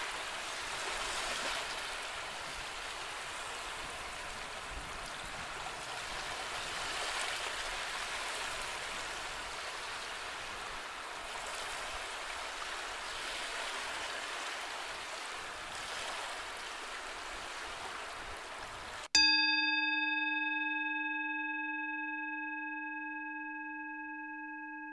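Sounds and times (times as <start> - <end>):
running water rushing: 0.0 - 19.1.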